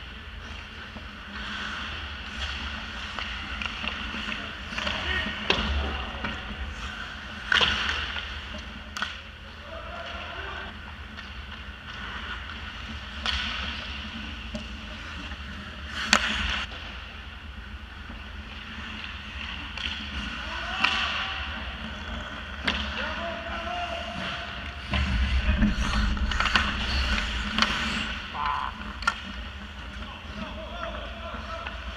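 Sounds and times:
skate blades scraping ice: 0.4s - 5.4s, 24.0s - 30.4s
hockey sticks and puck clacking: 0.4s - 17.0s, 18.0s - 25.1s, 26.4s - 31.9s.

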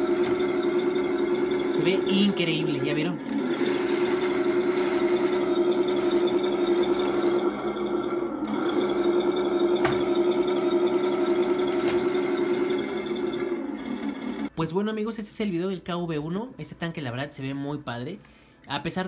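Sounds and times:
electric motors whining: 0.0s - 14.5s.

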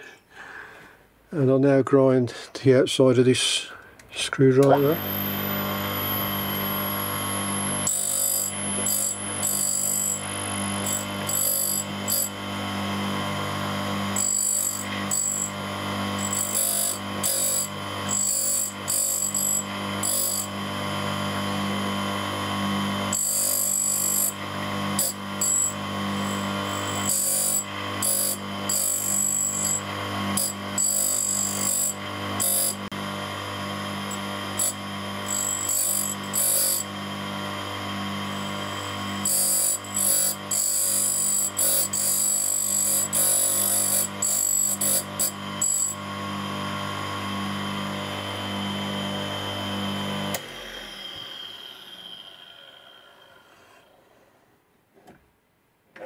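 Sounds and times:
grinder motor humming: 3.7s - 54.1s
grinding wheel hissing on metal: 4.7s - 12.4s, 13.2s - 20.7s, 23.1s - 32.9s, 34.0s - 37.0s, 38.3s - 46.0s.

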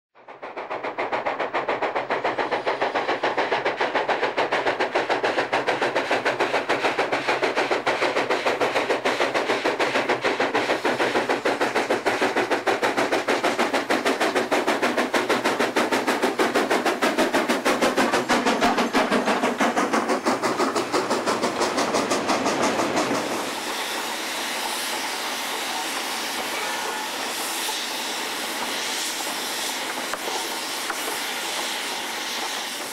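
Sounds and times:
steam locomotive exhaust beating: 0.2s - 32.9s
train rumble and hiss: 0.2s - 32.9s.

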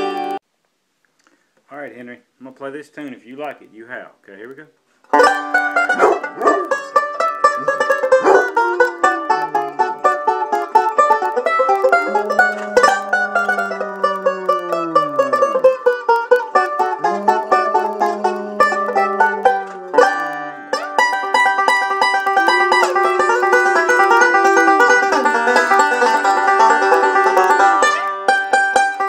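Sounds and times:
banjo picking: 0.0s - 0.4s, 5.0s - 29.0s
puppy howling: 5.9s - 20.9s, 21.8s - 28.0s.

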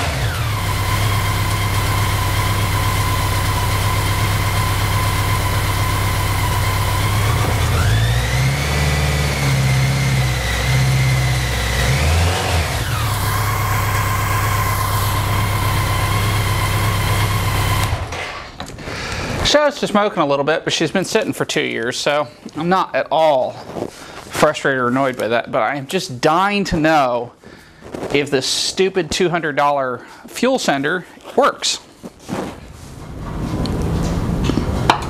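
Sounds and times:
motorcycle engine idling and revving: 0.0s - 18.2s.

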